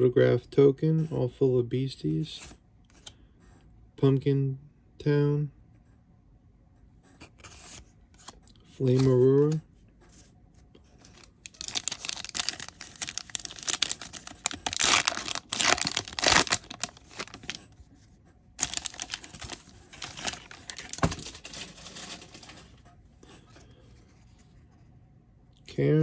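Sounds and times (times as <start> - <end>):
foil pack tearing and crinkling: 11.2 - 17.6, 18.6 - 22.6.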